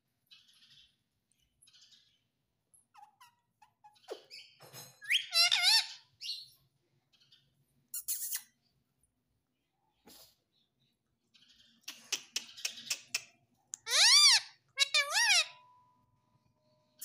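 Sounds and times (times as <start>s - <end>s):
parakeet chirping: 1.7s - 8.7s, 13.8s - 15.7s.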